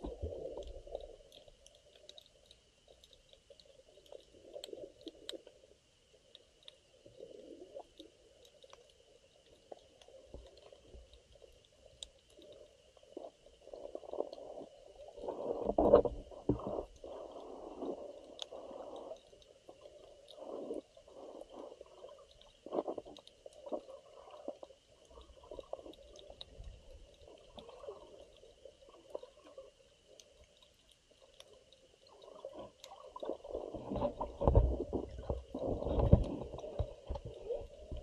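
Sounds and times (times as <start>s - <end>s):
faint clicks: 0.0s - 38.0s
underwater sloshing and gurgling: 0.0s - 38.0s.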